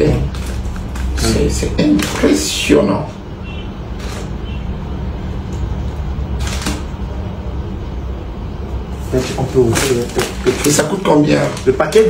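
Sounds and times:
package rustling: 0.1s - 2.4s, 9.1s - 12.0s.

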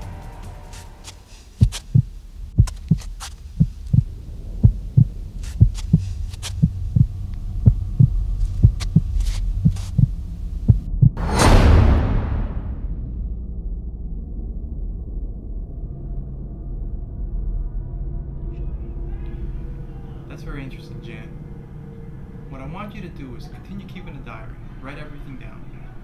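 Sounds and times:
heartbeat thumps: 0.7s - 11.3s
low drone: 3.4s - 26.0s
loud rushing burst: 11.2s - 13.0s.

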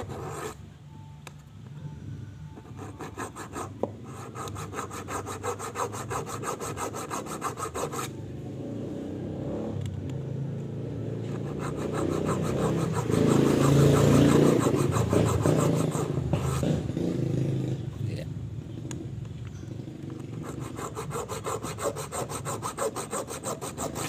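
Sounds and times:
hacksaw scraping metal: 11.4s - 16.6s, 20.4s - 24.0s.

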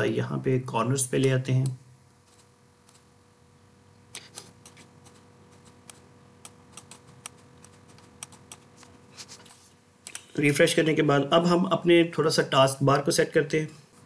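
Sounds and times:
faint steady hum: 0.0s - 14.0s
computer mouse clicks: 1.2s - 3.1s, 4.1s - 8.9s.

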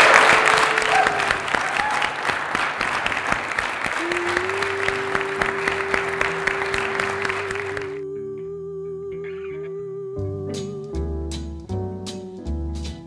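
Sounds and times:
crowd applauding and cheering: 0.0s - 8.0s
music with long held note: 4.0s - 13.0s.

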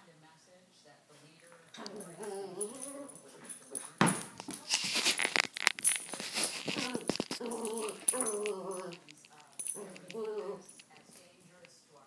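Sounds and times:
dog whining and growling: 1.8s - 3.4s, 6.7s - 9.0s, 9.8s - 10.8s.

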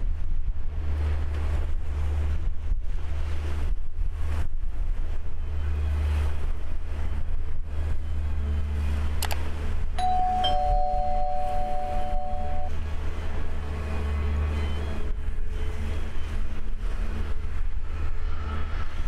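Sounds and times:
wind rumble on microphone: 0.0s - 19.0s
two-note doorbell chime: 10.0s - 12.7s.

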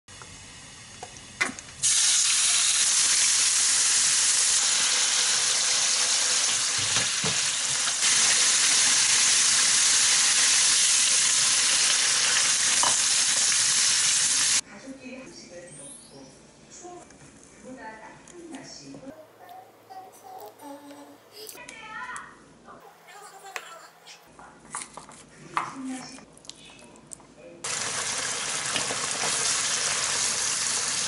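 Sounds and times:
pork sizzling in hot oil: 0.1s - 14.6s, 27.6s - 31.0s.

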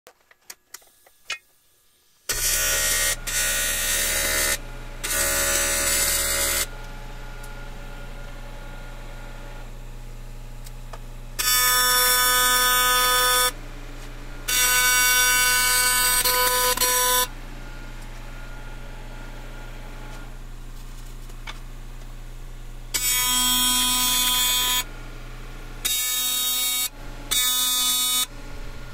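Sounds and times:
steady low hum: 1.8s - 25.9s, 26.8s - 28.9s
welding arc buzzing: 2.3s - 9.8s, 10.4s - 20.4s, 22.9s - 24.9s, 25.8s - 28.9s.

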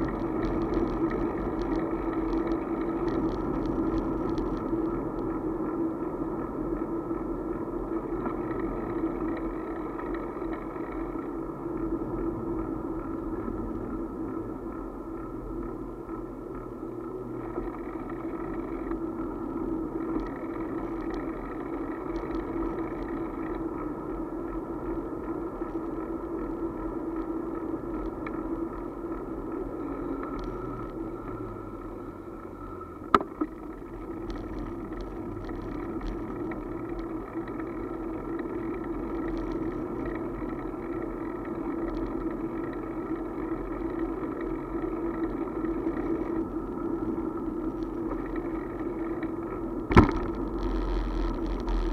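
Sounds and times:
motorbike riding on asphalt: 0.0s - 51.9s.

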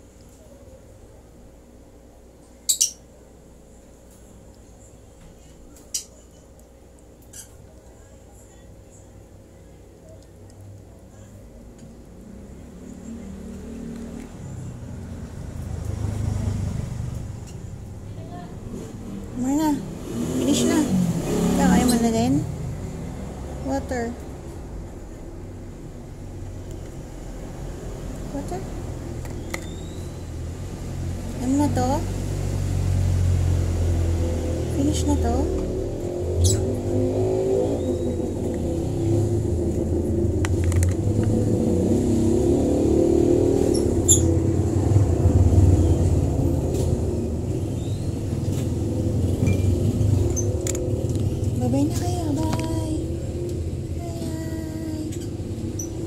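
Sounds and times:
vehicle engine passing by: 12.2s - 56.0s.

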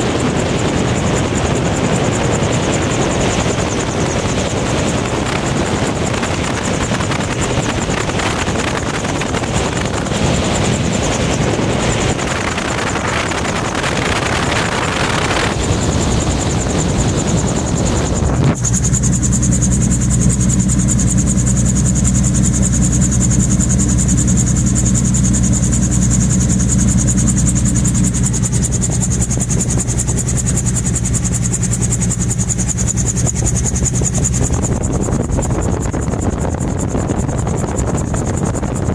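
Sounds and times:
engine and rotor humming: 0.0s - 38.9s
rush of wind: 0.0s - 38.9s.

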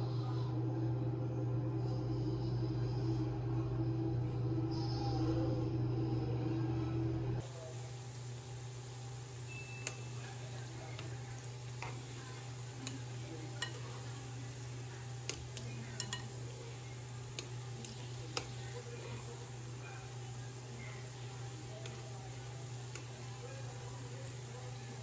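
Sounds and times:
low hum: 0.0s - 25.0s
doughnuts sizzling in oil: 7.4s - 25.0s
metal chopsticks clicking on pan: 13.6s - 13.8s, 15.2s - 16.4s, 17.4s - 18.5s.

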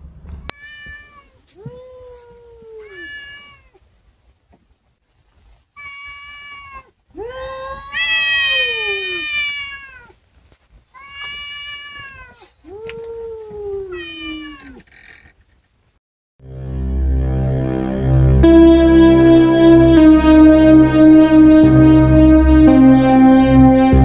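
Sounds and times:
cats yowling: 0.5s - 3.8s, 5.8s - 10.2s, 11.0s - 14.9s.

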